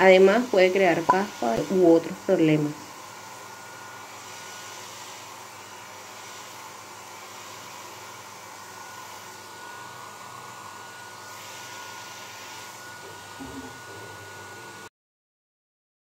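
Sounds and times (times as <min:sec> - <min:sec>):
thin steady whine: 0:00.0 - 0:14.8
hair dryer blowing air: 0:00.0 - 0:14.9.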